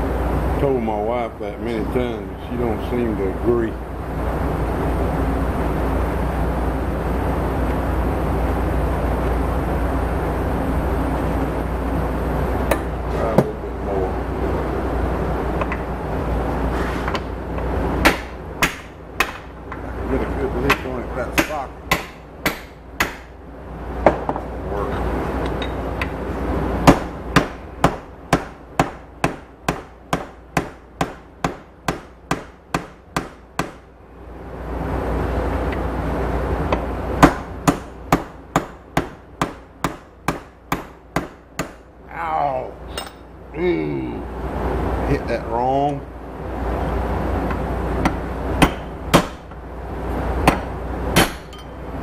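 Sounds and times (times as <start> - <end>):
steady rush of noise: 0.0 - 29.6, 33.8 - 38.2.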